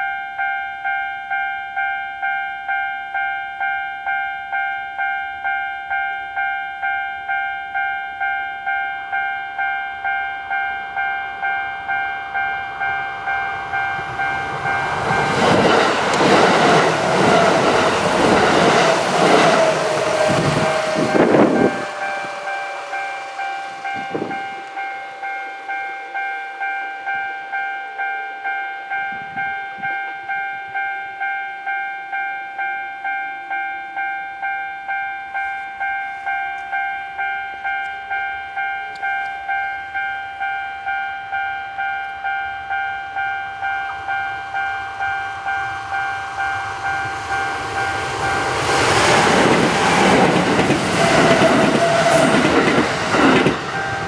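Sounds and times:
electric train passing: 0:00.0 - 0:54.0
level crossing alarm bell ringing: 0:00.0 - 0:54.0.

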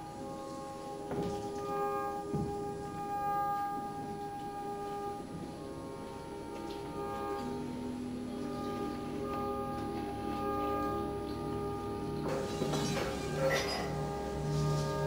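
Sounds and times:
ambient drone music: 0:00.0 - 0:15.0
soft knocks: 0:02.3 - 0:02.7.

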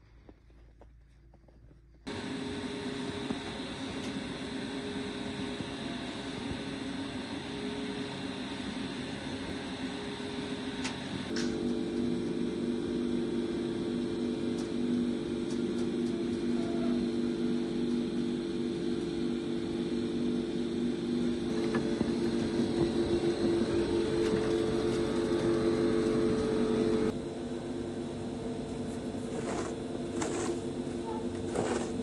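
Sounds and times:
chairlift machinery humming: 0:02.1 - 0:32.0.

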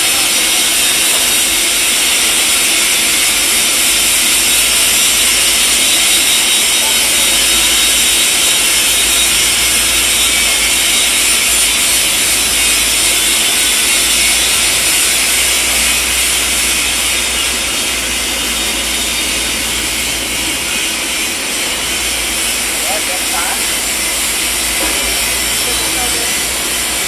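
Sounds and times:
welding arc hissing: 0:00.0 - 0:27.0.

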